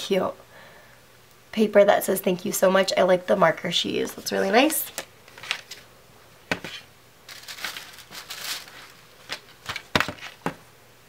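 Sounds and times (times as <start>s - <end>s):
paper crinkling: 4.5s - 5.9s, 6.5s - 10.6s.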